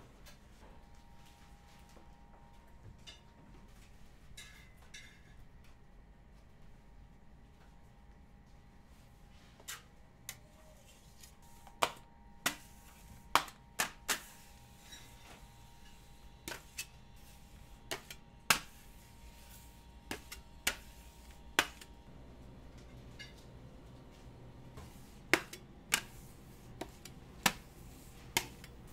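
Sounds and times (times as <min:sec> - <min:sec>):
faint steady hum: 0:00.0 - 0:28.9.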